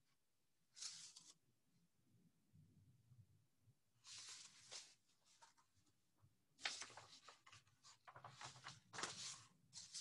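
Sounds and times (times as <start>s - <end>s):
book pages rustling: 0.7s - 1.4s, 4.0s - 6.0s, 6.6s - 10.0s.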